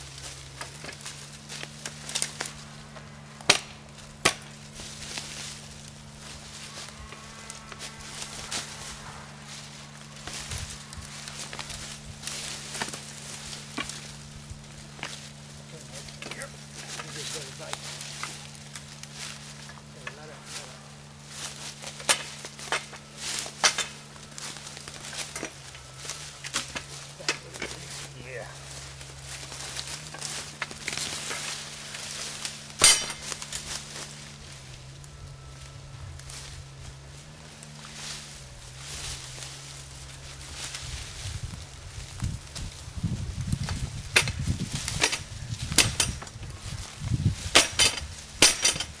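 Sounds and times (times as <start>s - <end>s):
wood snapping and cracking: 0.0s - 38.0s, 38.6s - 49.0s
low rumble: 0.0s - 49.0s
rustling brush and dry leaves: 0.0s - 49.0s
wood snapping and clicking: 0.4s - 4.6s, 12.7s - 13.1s, 29.8s - 31.5s.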